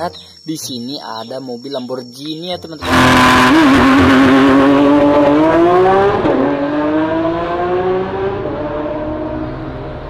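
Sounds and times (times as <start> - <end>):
sports car engine accelerating: 2.8 - 10.0.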